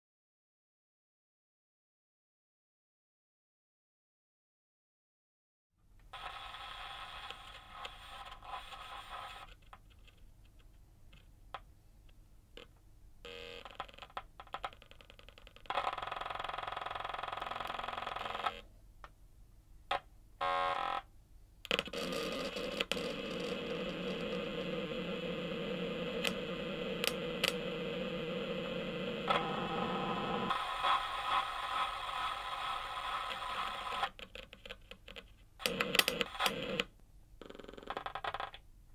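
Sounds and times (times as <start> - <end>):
glitchy electronic tones and crackle: 6.1 - 9.5, 21.7 - 36.9
dense electronic buzz: 21.7 - 31.6
scattered clicks: 26.2 - 27.7, 33.3 - 36.9.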